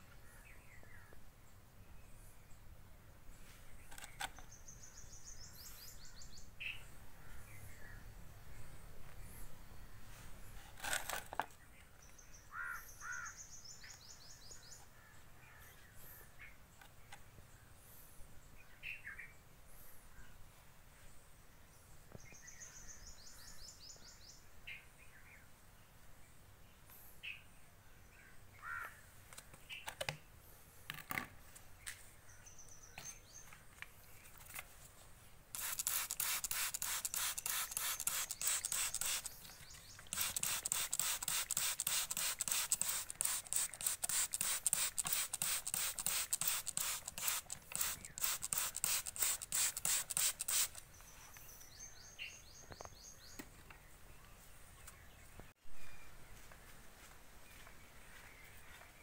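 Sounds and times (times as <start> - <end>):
spray bottle squirts: 35.5 - 39.4, 40.0 - 50.8.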